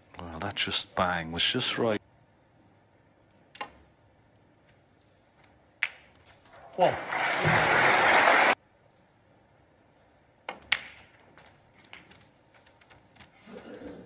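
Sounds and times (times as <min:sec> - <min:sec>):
snooker balls clicking: 0:05.4 - 0:06.5, 0:10.4 - 0:13.4
audience applause: 0:06.6 - 0:08.6.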